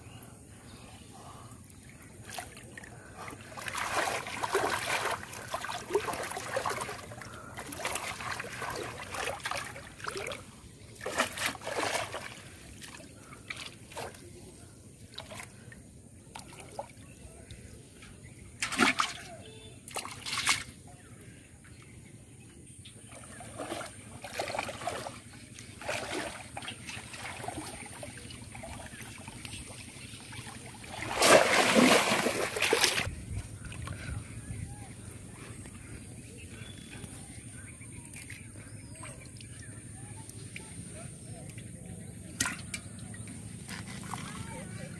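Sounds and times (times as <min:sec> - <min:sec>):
shallow water splashing: 0:01.8 - 0:14.4, 0:18.5 - 0:20.8, 0:23.0 - 0:33.1.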